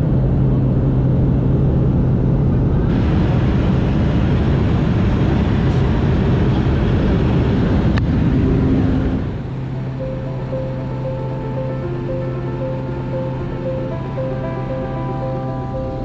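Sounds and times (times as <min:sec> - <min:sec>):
light aircraft engine and propeller: 0:00.0 - 0:16.0
rush of air: 0:02.1 - 0:09.6.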